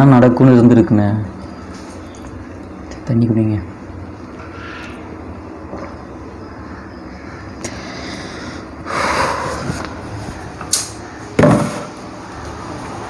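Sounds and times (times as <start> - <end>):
bottle thumping on wooden desk: 11.4 - 11.9.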